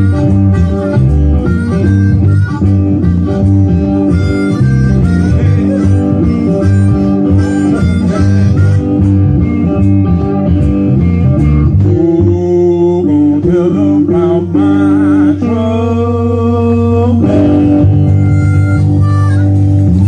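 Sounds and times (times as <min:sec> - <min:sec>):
harmonica long held notes: 0:00.0 - 0:11.8, 0:17.0 - 0:20.0
live blues band playing: 0:00.0 - 0:20.0.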